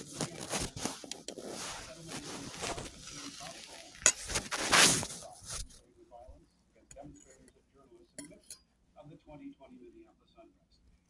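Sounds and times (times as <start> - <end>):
rustling at phone microphone: 0.0 - 6.3.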